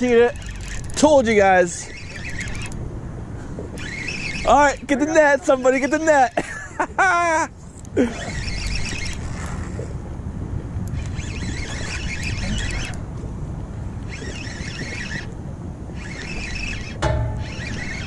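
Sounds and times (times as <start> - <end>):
fishing reel whirring: 0.0 - 2.8, 3.6 - 6.6, 8.0 - 9.9, 10.8 - 13.0, 14.0 - 18.0
wind buffeting microphone: 0.0 - 18.0.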